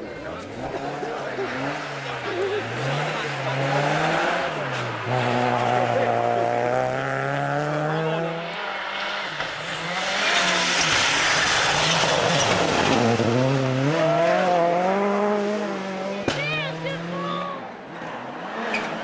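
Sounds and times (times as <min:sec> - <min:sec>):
rally car engine: 0:00.0 - 0:19.0.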